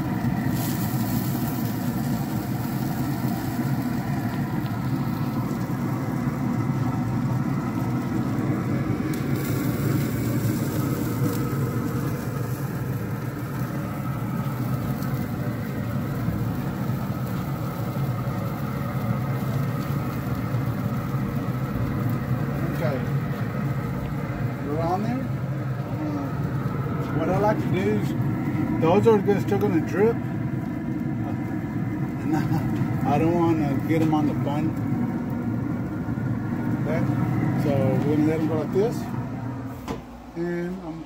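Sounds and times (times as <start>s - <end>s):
grill fan motor humming: 0.0s - 41.0s.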